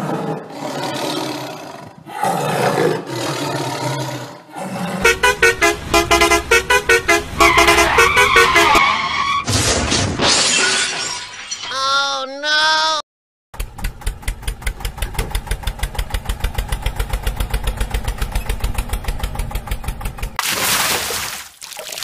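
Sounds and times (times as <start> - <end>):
vehicle horn honking: 5.0 - 9.0.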